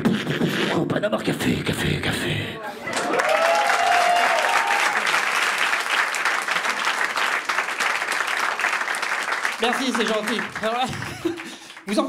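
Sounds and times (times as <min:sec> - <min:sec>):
audience applauding: 0:02.9 - 0:12.0.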